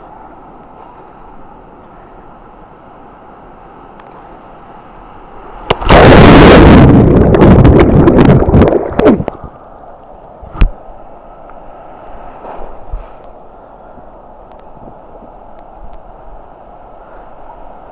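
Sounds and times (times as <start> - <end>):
wind and waves hissing: 0.0 - 17.9
water churning against microphone: 5.2 - 9.6.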